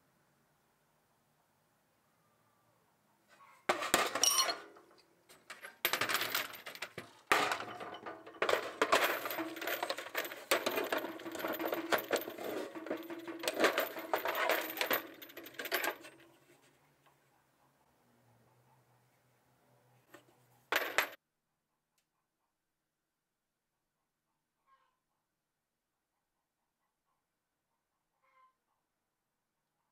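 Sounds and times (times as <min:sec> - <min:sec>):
sockets and ratchet clattering: 0:03.7 - 0:16.3.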